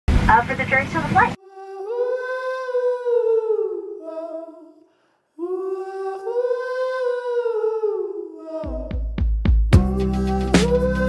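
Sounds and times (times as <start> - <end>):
high voice singing held notes: 1.4 - 4.8, 5.4 - 9.1, 9.8 - 11.0
song beat: 8.7 - 11.0.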